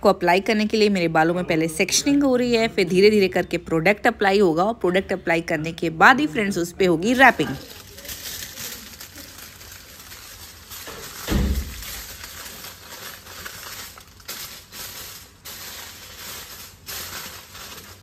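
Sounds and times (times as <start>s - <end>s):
aluminium foil crinkling: 7.0s - 18.0s.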